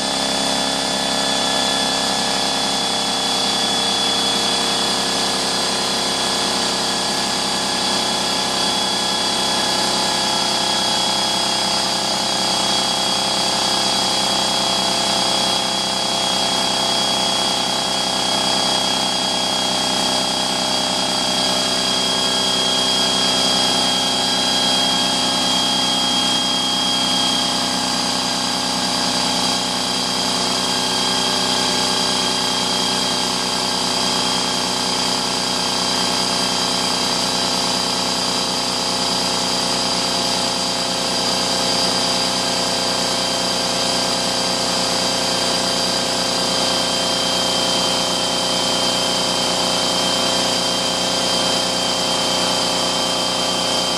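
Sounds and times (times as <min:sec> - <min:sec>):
air compressor running: 0:00.0 - 0:53.9.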